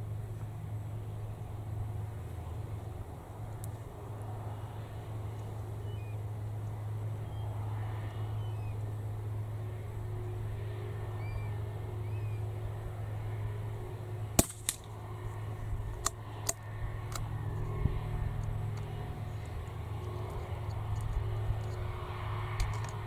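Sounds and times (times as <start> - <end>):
steady low hum: 0.0 - 23.0
rifle shot: 14.4 - 14.8.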